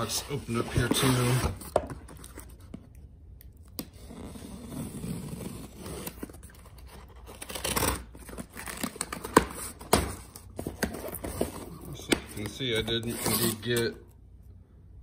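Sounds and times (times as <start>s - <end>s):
cardboard tearing: 0.0s - 1.8s, 3.8s - 13.9s.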